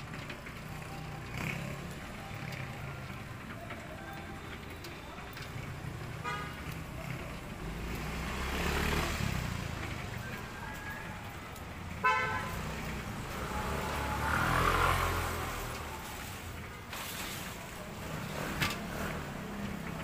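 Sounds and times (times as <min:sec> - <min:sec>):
vehicle engines running: 0:00.0 - 0:20.0
vehicle passing close: 0:05.3 - 0:20.0.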